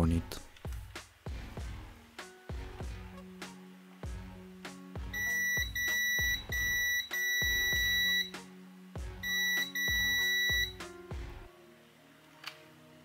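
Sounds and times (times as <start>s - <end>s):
background music with plucked low notes: 0.0s - 13.0s
multimeter high beep: 5.2s - 8.3s, 9.2s - 10.8s.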